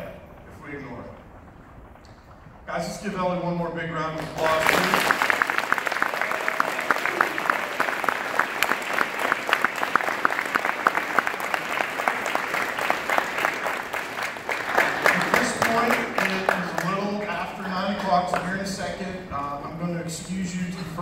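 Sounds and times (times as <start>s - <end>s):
audience applauding: 4.2s - 18.8s.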